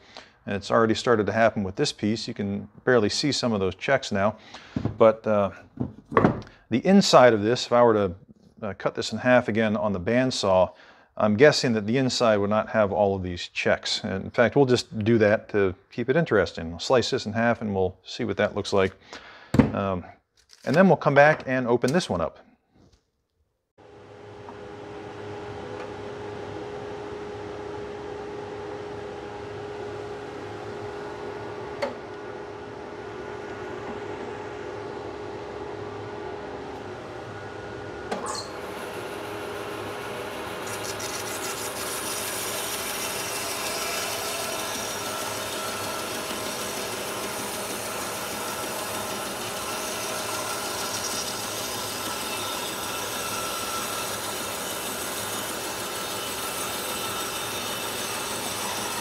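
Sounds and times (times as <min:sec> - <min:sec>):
bandsaw humming: 0:38.4 - 0:59.0
bandsaw cutting wood: 0:38.6 - 0:59.0.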